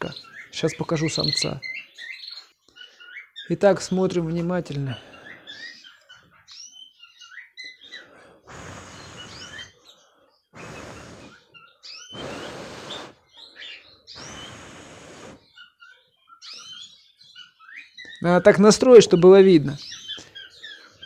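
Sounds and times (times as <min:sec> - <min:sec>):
canaries chirping: 0:00.0 - 0:21.0
puffs of breath: 0:07.8 - 0:15.6.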